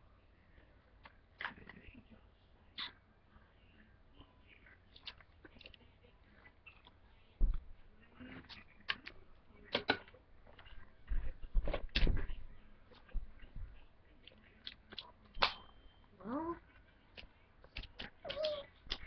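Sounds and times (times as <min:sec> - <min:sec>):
footsteps and bumps: 0:07.4 - 0:07.8, 0:11.0 - 0:12.5.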